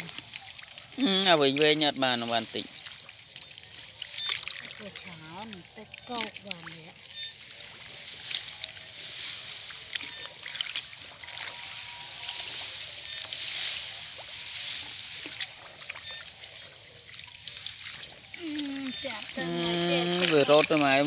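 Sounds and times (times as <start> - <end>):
hands splashing in muddy water: 0.0 - 7.3, 17.0 - 21.0.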